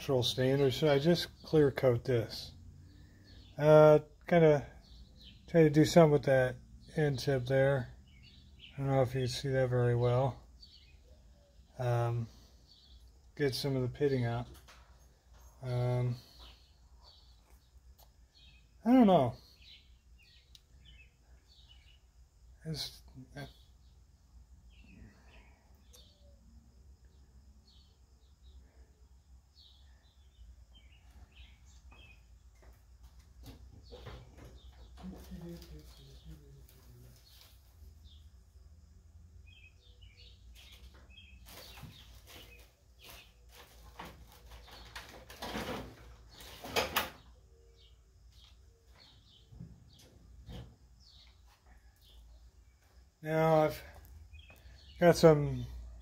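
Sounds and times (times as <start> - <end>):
faint bird chirps: 14.0 - 56.0.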